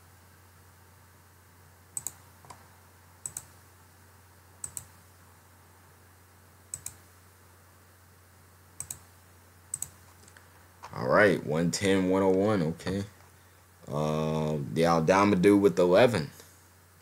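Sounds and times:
faint low hum: 0:00.0 - 0:17.0
computer mouse clicks: 0:02.0 - 0:02.6, 0:03.2 - 0:03.6, 0:04.6 - 0:05.0, 0:06.7 - 0:07.0, 0:08.8 - 0:09.1, 0:09.7 - 0:10.5.

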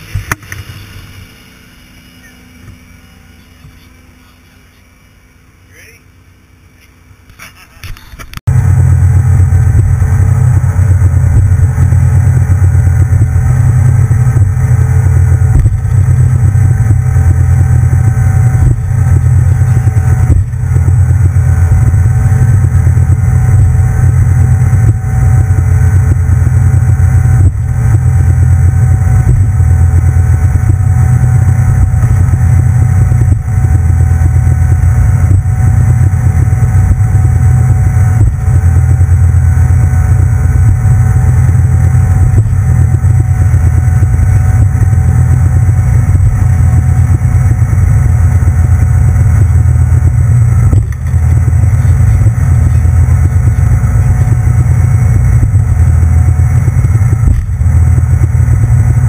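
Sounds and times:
boat engine low drone: 0:00.0 - 0:59.0.

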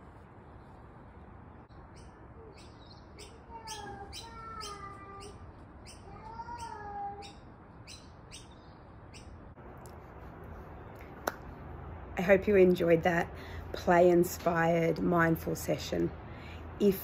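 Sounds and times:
small bird chirping: 0:01.6 - 0:09.6.

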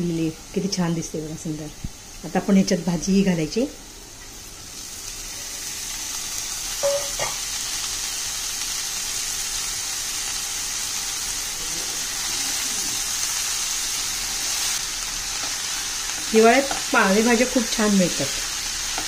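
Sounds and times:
leaves sizzling in hot oil: 0:00.0 - 0:19.0
metallic clink: 0:06.8 - 0:07.4.

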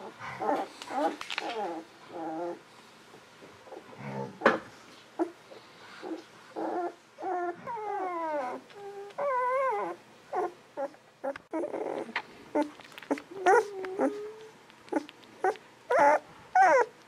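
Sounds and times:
puppies whimpering and squeaking: 0:00.0 - 0:02.6, 0:06.0 - 0:17.0.

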